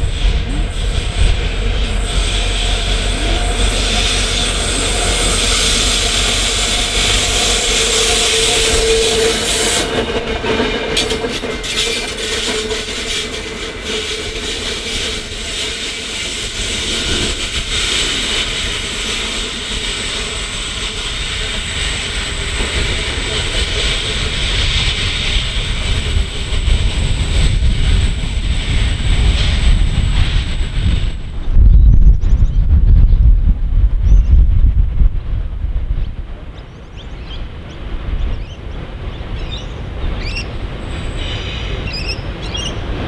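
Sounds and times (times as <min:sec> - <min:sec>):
diesel locomotive passing: 0:00.0 - 0:43.0
wheels clicking over rail joints: 0:05.7 - 0:31.0.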